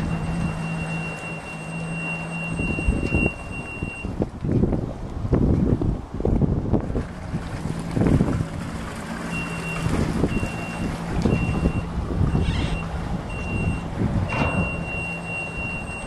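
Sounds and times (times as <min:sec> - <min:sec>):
electronic warning beeps: 0:00.0 - 0:04.1, 0:09.3 - 0:16.0
wind on microphone: 0:02.5 - 0:16.0.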